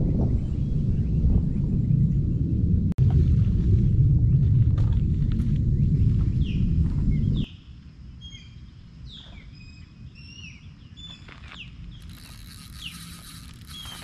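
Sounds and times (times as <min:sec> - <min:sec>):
loud low rumble: 0:00.0 - 0:07.5
birds chirping: 0:05.7 - 0:14.0.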